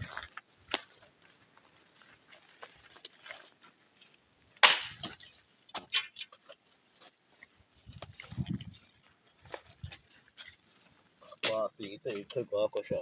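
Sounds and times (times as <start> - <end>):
dry fronds crackling and snapping: 2.0 - 11.1
sharp crack: 4.6 - 6.3.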